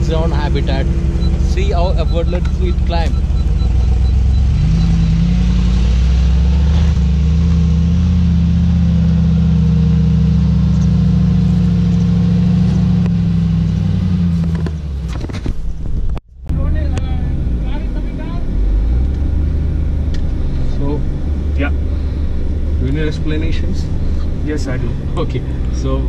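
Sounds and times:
engine running under load: 0.0s - 15.3s.

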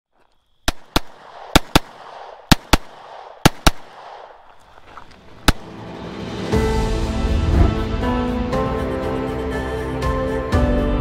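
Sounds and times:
handgun shots: 0.7s - 4.6s, 5.3s - 5.8s.

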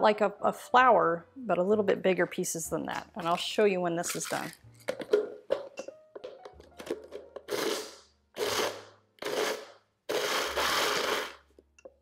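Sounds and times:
blender grinding: 7.4s - 11.5s.

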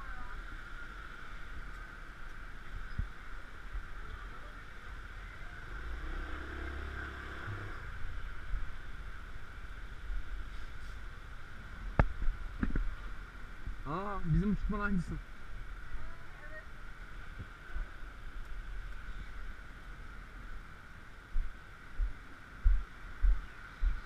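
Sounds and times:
steady outdoor hiss: 0.0s - 24.0s
passing engine rumble: 4.8s - 11.9s.

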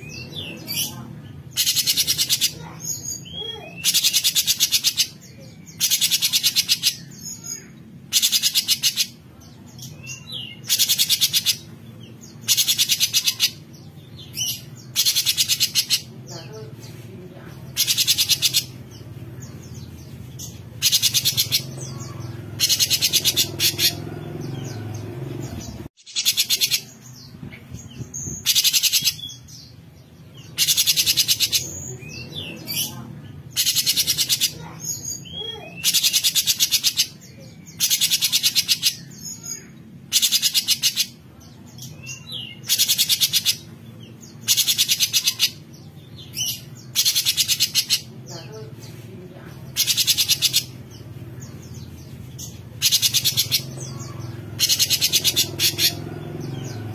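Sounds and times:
bird rasping buzzy calls: 20.8s - 24.8s, 52.7s - 56.9s.

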